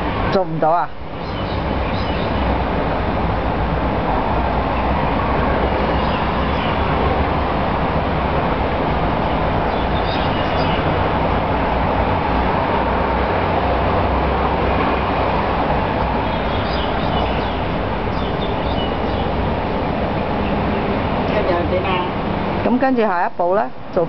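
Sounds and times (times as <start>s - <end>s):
steady background noise: 0.0s - 24.0s.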